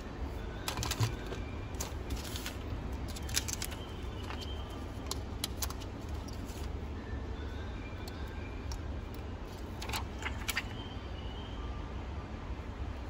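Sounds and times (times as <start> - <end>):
steady low hum: 0.0 - 13.0
protective film peeling: 0.7 - 6.7.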